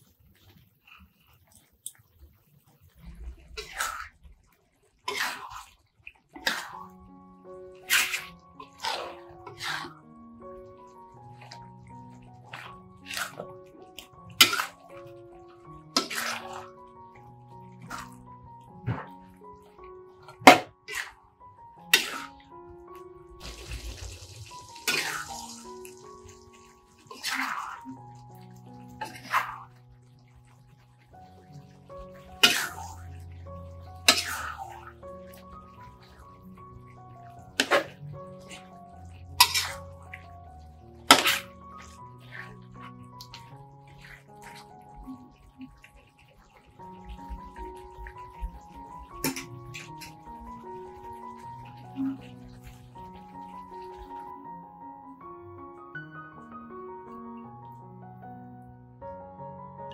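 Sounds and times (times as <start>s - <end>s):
soft music: 0.0s - 4.2s, 5.1s - 59.9s
spatula scraping in metal wok: 34.0s - 34.8s, 39.4s - 39.9s.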